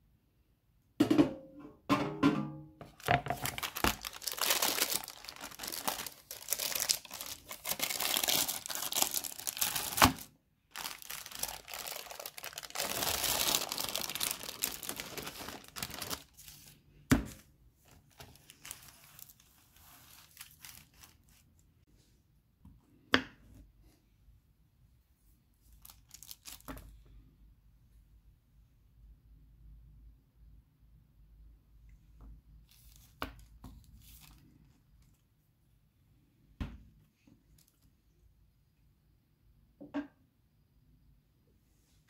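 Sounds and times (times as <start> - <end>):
baking paper crinkling: 2.9 - 21.8, 25.7 - 26.9.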